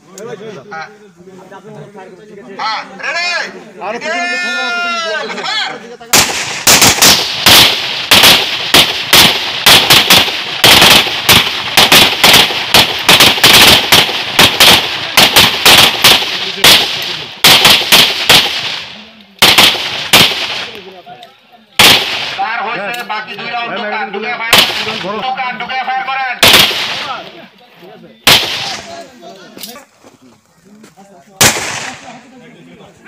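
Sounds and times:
pistols firing: 0:06.1 - 0:21.0, 0:21.8 - 0:22.6, 0:24.5 - 0:25.2, 0:26.4 - 0:27.3, 0:28.2 - 0:29.0, 0:31.4 - 0:32.2.

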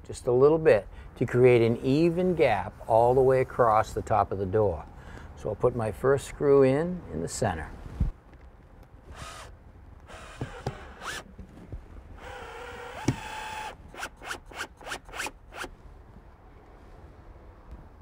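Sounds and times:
cordless drill whine: 0:09.1 - 0:09.5, 0:10.1 - 0:11.3, 0:12.2 - 0:15.7.

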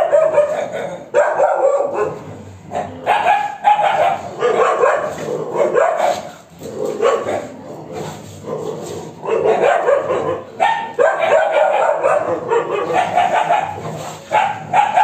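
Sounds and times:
dogs barking and yipping in a fight: 0:00.0 - 0:15.0.

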